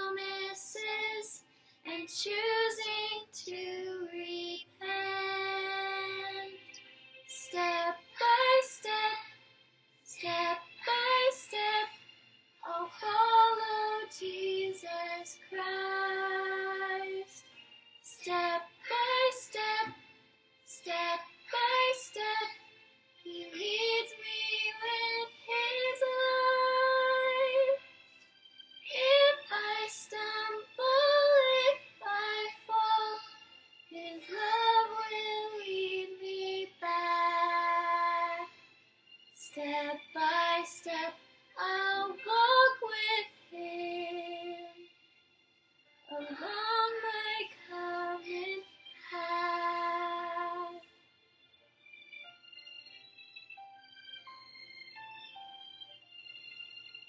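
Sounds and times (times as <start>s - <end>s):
woman singing unaccompanied: 0.0s - 6.6s, 10.1s - 11.9s, 12.6s - 17.4s, 18.1s - 19.9s, 20.7s - 22.5s, 28.9s - 33.2s, 33.9s - 38.5s, 39.4s - 44.8s, 46.1s - 50.8s
breaths: 1.4s - 1.9s.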